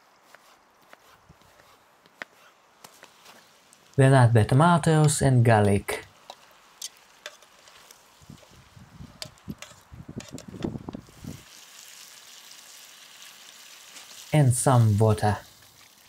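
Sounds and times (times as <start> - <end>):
food sizzling in a pot: 2.8 - 4.0, 4.7 - 16.0.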